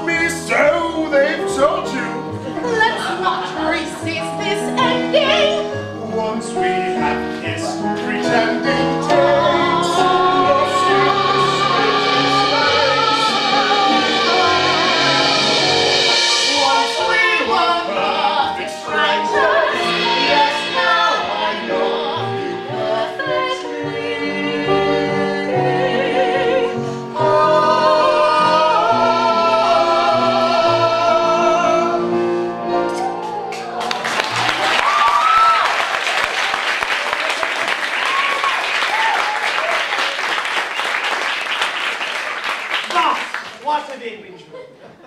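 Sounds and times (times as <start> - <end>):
instrumental accompaniment: 0.0 - 35.1
two singers singing duet: 4.8 - 33.2.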